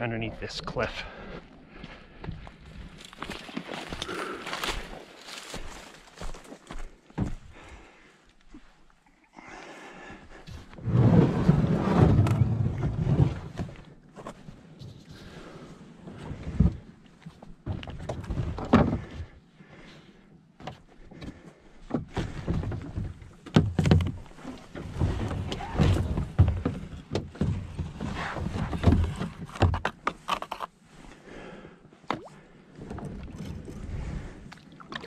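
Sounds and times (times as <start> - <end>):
dry reeds rustling: 3.0 - 6.6.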